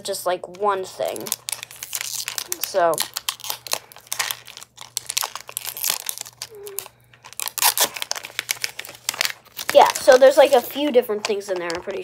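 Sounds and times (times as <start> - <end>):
plastic wrapping crinkling: 0.5 - 12.0.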